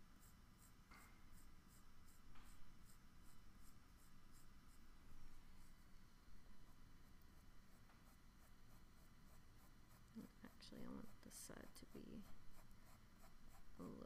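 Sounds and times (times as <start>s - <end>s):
pencil scratching on paper: 0.1s - 4.8s, 6.6s - 14.0s.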